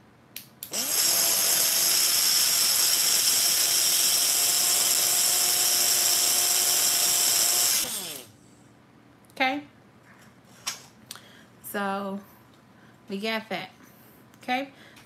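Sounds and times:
electric grinder motor whirring: 0.7 - 8.3.

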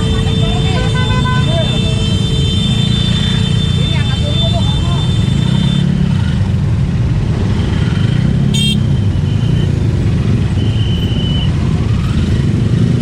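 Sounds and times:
high horn toot: 0.0 - 5.9, 8.5 - 9.6
traffic engines droning: 0.0 - 13.0.

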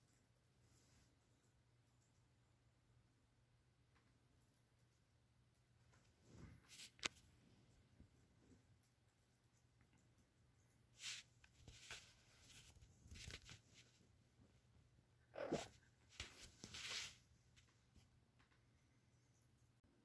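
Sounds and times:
faint rustles: 5.8 - 9.0, 10.0 - 14.6, 15.4 - 18.6.

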